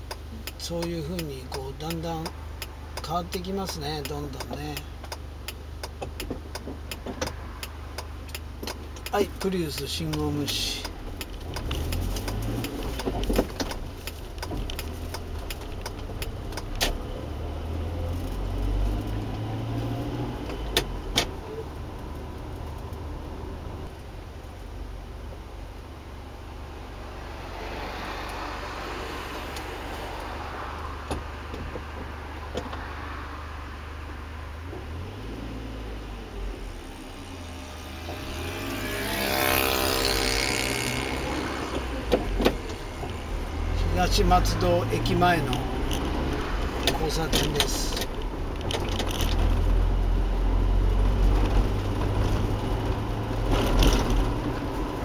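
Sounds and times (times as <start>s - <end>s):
car engine and road noise: 0.0s - 55.0s
vehicle passing close by: 27.0s - 47.9s
light clicks and rattles: 46.8s - 49.7s.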